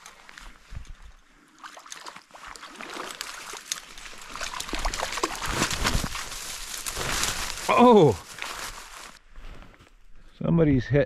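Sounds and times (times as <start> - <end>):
fish splashing at water surface: 1.6 - 6.6.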